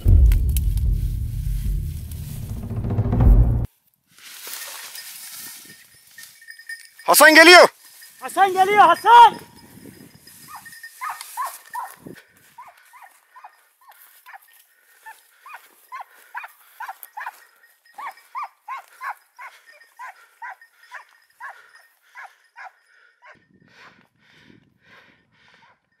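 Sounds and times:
dog barking: 0:10.5 - 0:12.0, 0:15.4 - 0:17.4, 0:18.0 - 0:23.4.

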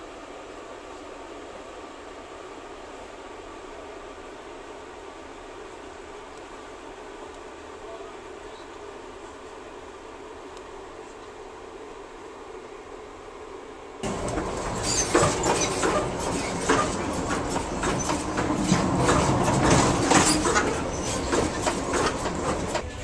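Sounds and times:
train wheels rumbling on track: 0:14.0 - 0:23.0.

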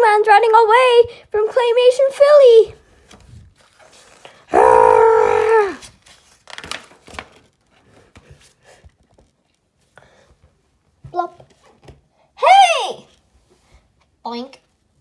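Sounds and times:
comic book pages flipping: 0:02.9 - 0:04.5, 0:05.4 - 0:09.8.

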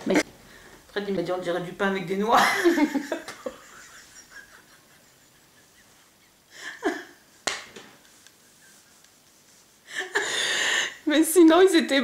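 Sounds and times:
woman laughing softly: 0:02.5 - 0:07.4, 0:08.1 - 0:10.9
wheezy breaths: 0:09.8 - 0:11.0.

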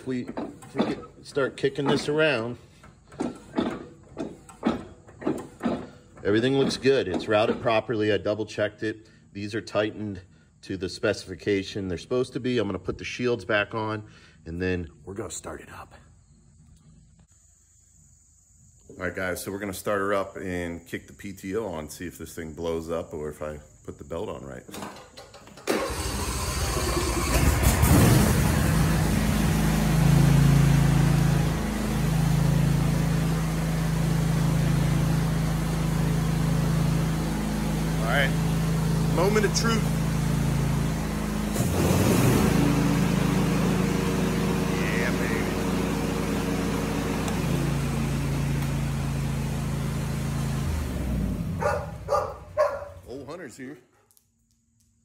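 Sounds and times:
mower engine cranking and running: 0:00.0 - 0:08.6, 0:24.5 - 0:53.2.

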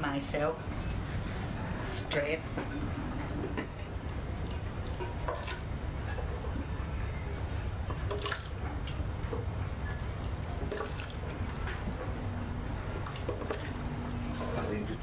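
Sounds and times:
steady low hum: 0:00.0 - 0:15.0
liquid splashing and dripping: 0:04.3 - 0:06.6, 0:07.8 - 0:14.4.

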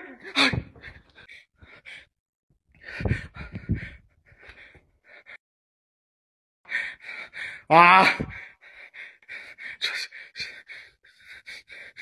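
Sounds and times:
man gasping breaths: 0:02.8 - 0:05.3.

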